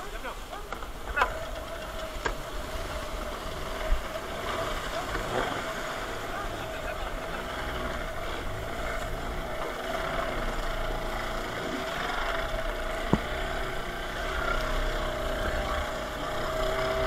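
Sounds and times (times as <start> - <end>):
steady boat hum: 0.0 - 17.0
surf breaking around boat: 0.0 - 17.0.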